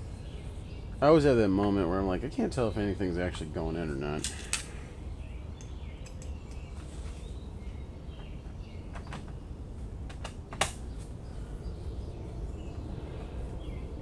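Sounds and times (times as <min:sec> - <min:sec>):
steady low hum: 0:00.0 - 0:14.0
sharp click: 0:05.6 - 0:06.7
small parts clicking and tapping: 0:05.6 - 0:06.7.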